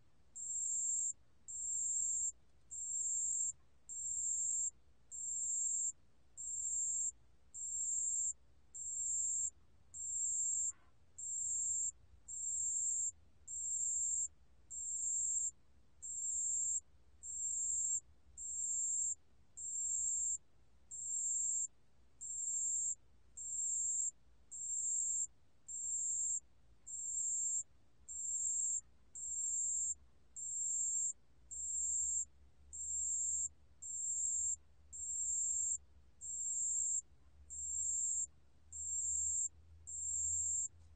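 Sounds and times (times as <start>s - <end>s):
cricket high-pitched trill: 0.4s - 40.7s.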